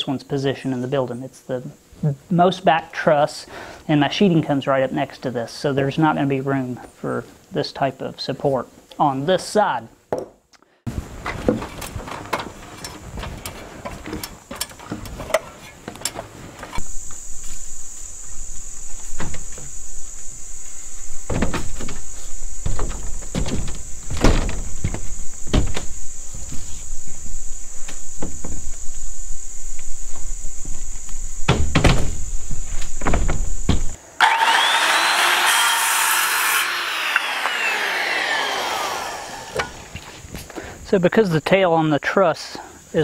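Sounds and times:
high insect drone: 0:10.9 - 0:43.0
footsteps and boards on metal roof: 0:11.2 - 0:16.7, 0:21.3 - 0:26.7, 0:31.4 - 0:33.9.

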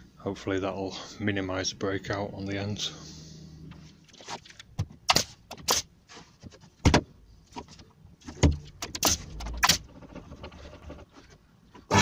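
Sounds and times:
pin nailer shots with air hiss: 0:05.1 - 0:05.9, 0:08.9 - 0:09.8.

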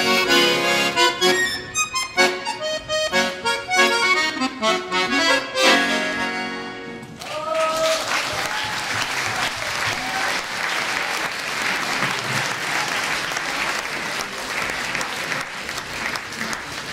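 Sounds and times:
audience cheering: 0:07.2 - 0:15.0
audience applauding: 0:07.2 - 0:16.9.

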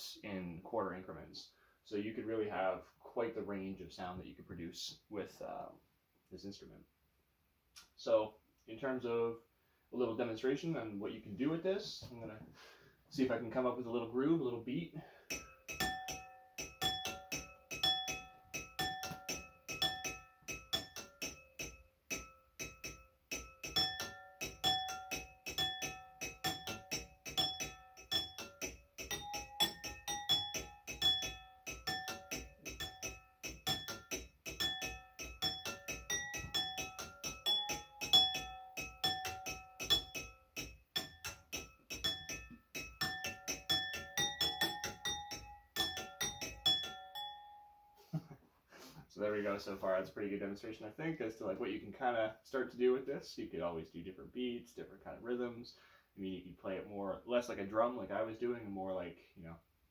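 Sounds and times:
water glasses tapped with sticks: 0:15.3 - 0:47.6.

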